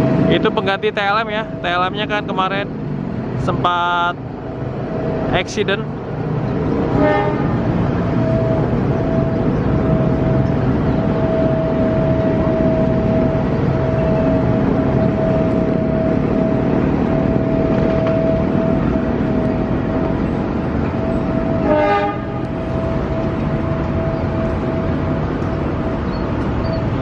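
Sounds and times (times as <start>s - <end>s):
train rumbling past: 0.0s - 27.0s
train horn toot: 6.9s - 7.7s, 21.0s - 24.9s.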